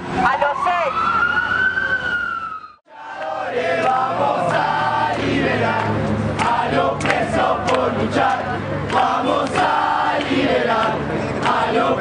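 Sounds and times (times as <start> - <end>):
siren: 0.2 - 2.8
crowd chanting: 2.9 - 12.0.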